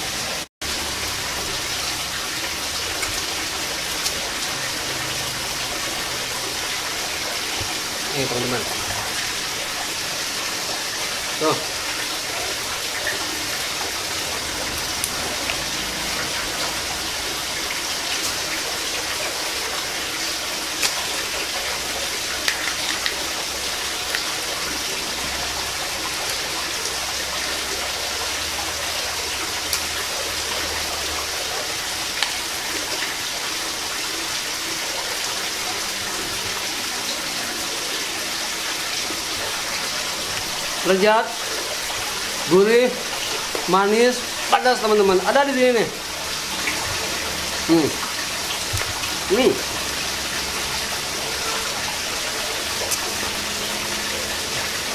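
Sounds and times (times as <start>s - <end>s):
water rushing: 0.0s - 54.9s
mussel shells clicking: 22.4s - 23.2s.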